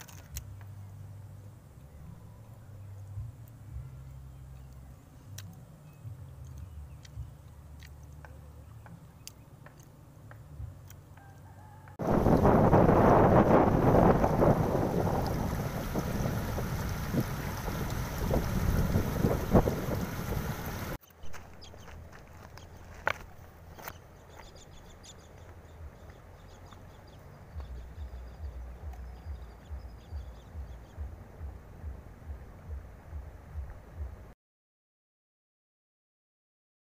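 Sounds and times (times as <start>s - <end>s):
birds chirping: 1.8s - 11.9s, 15.2s - 31.9s
low steady rumble: 11.9s - 21.0s, 21.7s - 34.3s
footsteps on loose stones: 21.0s - 24.6s.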